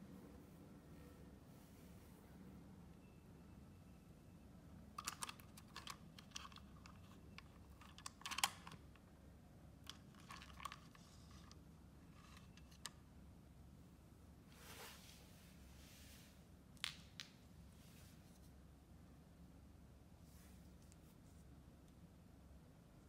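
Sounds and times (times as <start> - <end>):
plastic toys clicking on tile floor: 5.0 - 9.0, 9.9 - 11.6.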